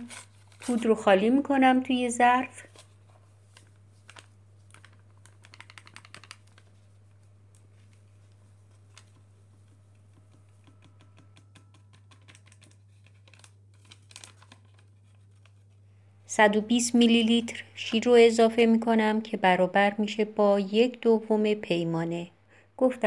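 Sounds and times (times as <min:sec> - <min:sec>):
paper sachet shaken and rustling: 0:00.0 - 0:01.3, 0:02.6 - 0:07.2, 0:12.0 - 0:15.8.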